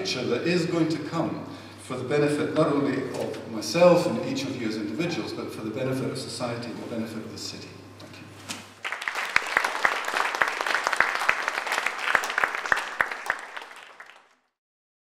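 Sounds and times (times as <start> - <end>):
audience applauding: 8.8 - 14.5.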